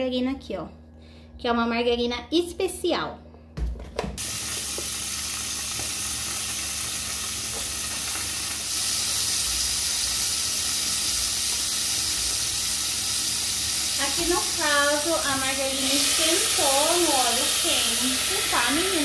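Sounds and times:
margarine sizzling in pan: 4.2s - 19.0s.

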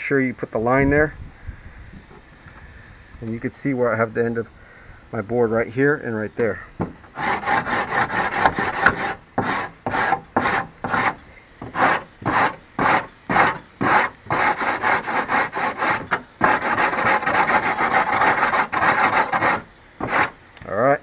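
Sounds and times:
sanding block rasping on edge: 7.1s - 20.4s.

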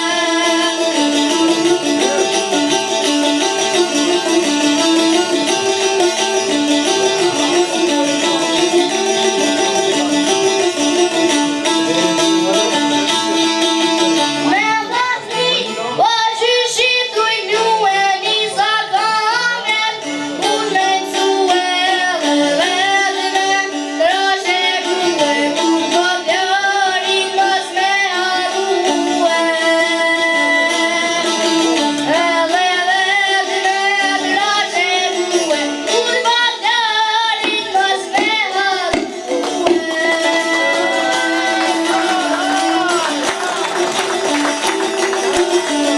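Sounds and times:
boy singing in a high voice: 0.0s - 2.4s, 14.4s - 43.2s
long-necked lutes playing: 0.0s - 45.9s.

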